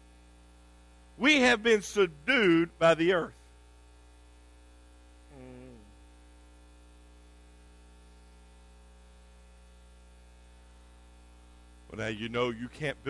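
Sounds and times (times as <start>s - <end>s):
electrical mains hum: 0.0s - 13.0s
brief low voice: 5.3s - 5.9s.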